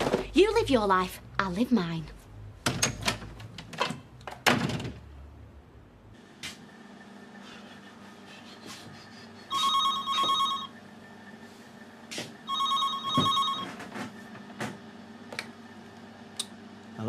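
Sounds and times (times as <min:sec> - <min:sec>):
telephone ringing: 0:09.5 - 0:10.8, 0:12.4 - 0:13.8.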